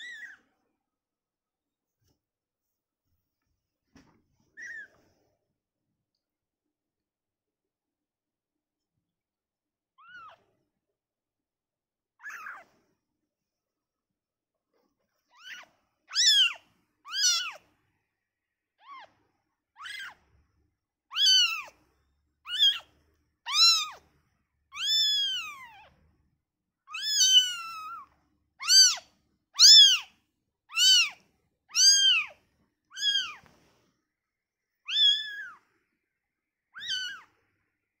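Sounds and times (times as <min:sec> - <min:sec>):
kitten mewing: 0:23.5 - 0:24.0, 0:26.9 - 0:28.0, 0:28.6 - 0:29.0, 0:29.6 - 0:30.1, 0:30.7 - 0:33.4, 0:36.8 - 0:37.3.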